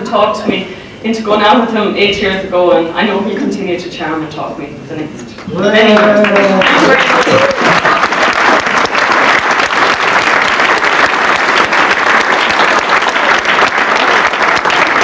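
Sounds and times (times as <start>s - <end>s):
crowd applauding: 5.6s - 15.0s.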